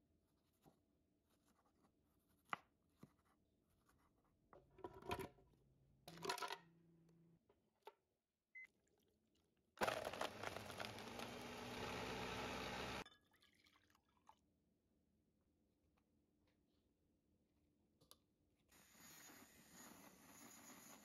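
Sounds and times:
blender running: 9.8s - 13.0s.

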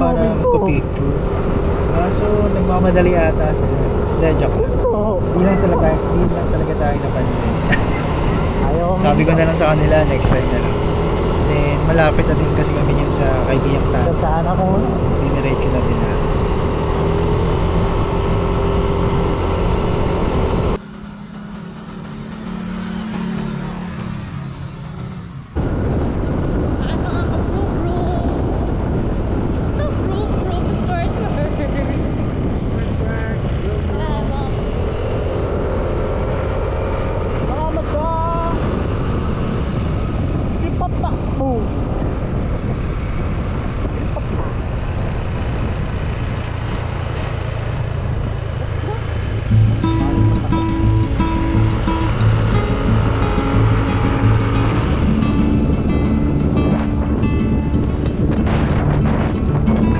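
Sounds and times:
wind rush: 0.0s - 20.8s, 23.8s - 59.9s
scooter engine: 0.0s - 25.6s, 43.6s - 59.9s
scooters approaching: 0.0s - 25.6s
scooter engine running: 44.5s - 59.9s.

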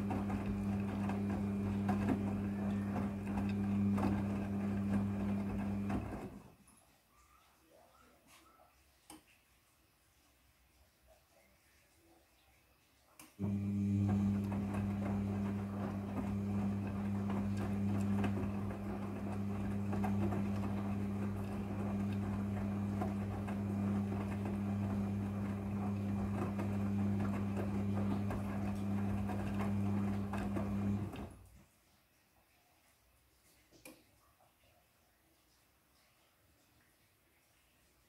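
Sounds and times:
washing machine motor humming: 0.0s - 6.5s, 13.4s - 31.5s.

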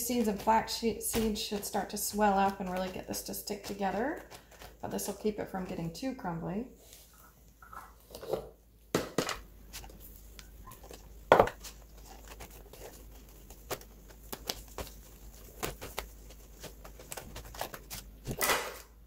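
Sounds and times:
hands patting damp pulp: 0.0s - 5.8s, 9.6s - 18.5s.

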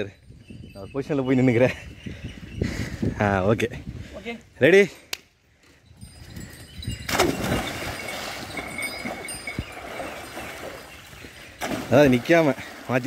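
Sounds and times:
person jumping into water: 7.1s - 10.8s, 11.4s - 12.9s
water splashing and churning: 7.1s - 13.0s.

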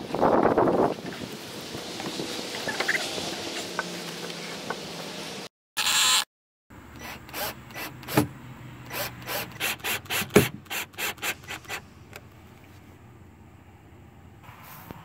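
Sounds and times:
drill driving screws: 5.8s - 6.3s, 6.9s - 11.8s.

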